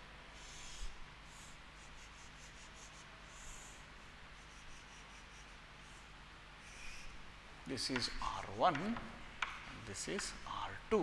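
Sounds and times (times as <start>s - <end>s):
chalk scratching on a chalkboard: 0.4s - 7.1s.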